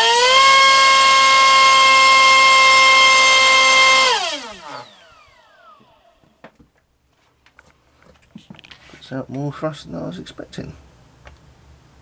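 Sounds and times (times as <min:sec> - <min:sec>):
electric motor high-pitched whine: 0:00.0 - 0:06.4.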